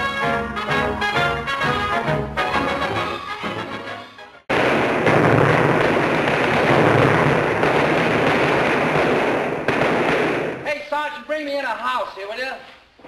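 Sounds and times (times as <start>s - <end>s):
brass title music: 0.0s - 5.8s.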